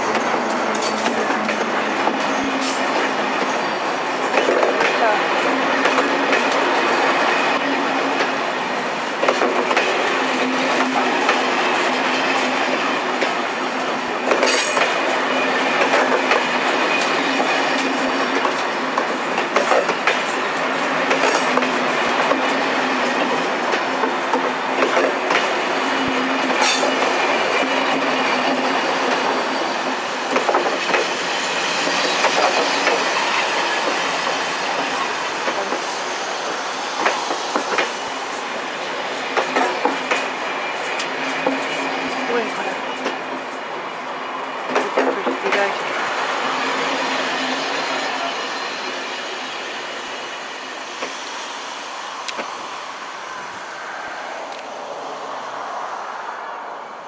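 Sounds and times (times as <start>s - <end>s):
train wheels clacking on rail joints: 0.0s - 38.0s, 39.1s - 43.6s, 44.7s - 46.0s
steady train hum: 0.0s - 57.0s.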